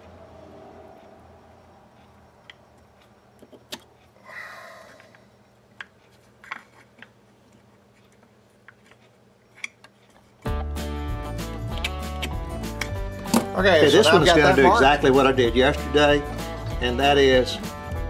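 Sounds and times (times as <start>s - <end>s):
music: 10.4s - 18.0s.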